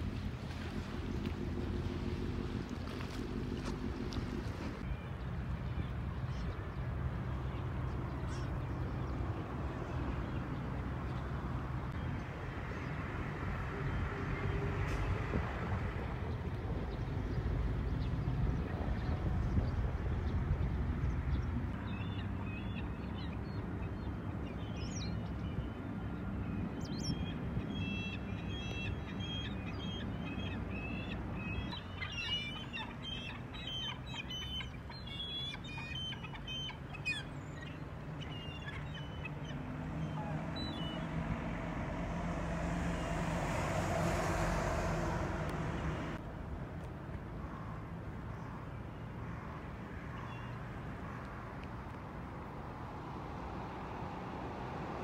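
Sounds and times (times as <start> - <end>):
gulls calling: 27.1 - 46.2.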